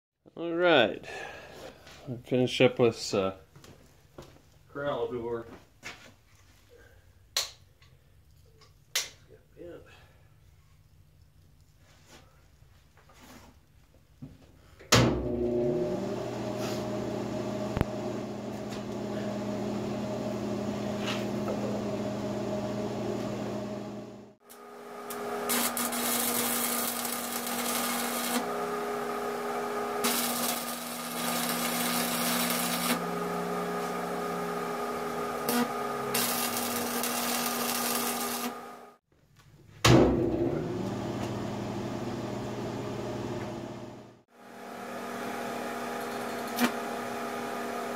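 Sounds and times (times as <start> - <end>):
machine hum: 15.4 - 39.0
welding arc crackling: 24.5 - 33.1, 35.4 - 38.7.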